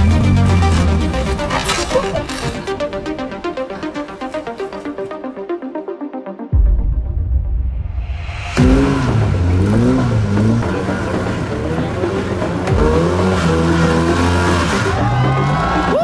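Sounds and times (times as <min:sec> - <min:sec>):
buggy engine revving: 0:00.0 - 0:02.9, 0:08.6 - 0:16.0.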